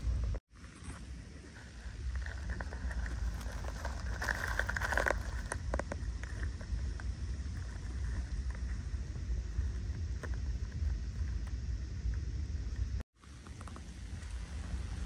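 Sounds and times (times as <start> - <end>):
steady low rumble: 0.0 - 15.0
dry leaves crackling: 1.4 - 8.8.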